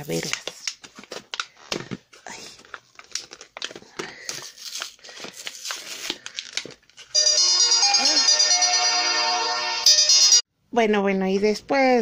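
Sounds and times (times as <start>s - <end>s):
plastic blister crinkling: 0.0s - 7.2s.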